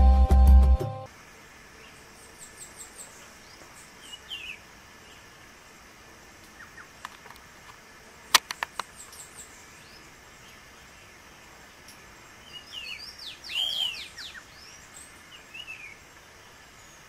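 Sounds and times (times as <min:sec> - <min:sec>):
sharp clicks: 0:07.0 - 0:09.2
birds chirping: 0:08.3 - 0:17.0.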